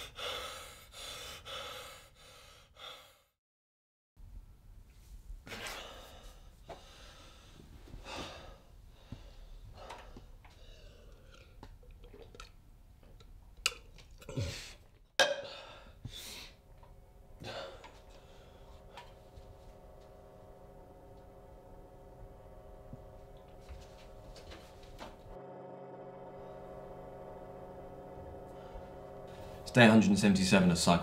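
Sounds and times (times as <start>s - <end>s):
multi-tone hum: 15.3s - 31.0s.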